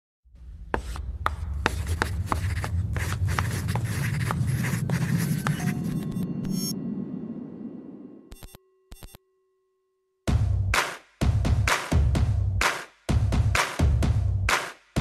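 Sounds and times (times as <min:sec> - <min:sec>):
chalk scratching on chalkboard: 0:00.8 - 0:06.1
low rumble: 0:03.8 - 0:08.3.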